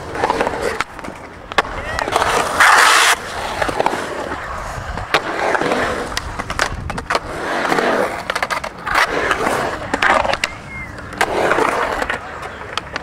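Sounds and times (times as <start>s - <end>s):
skateboards rolling on concrete: 0.0s - 13.0s
skateboards clacking on metal coping: 8.1s - 13.0s.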